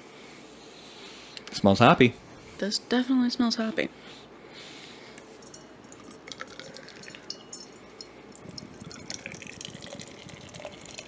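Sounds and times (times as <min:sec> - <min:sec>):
beer pouring into a glass: 0:05.4 - 0:11.0.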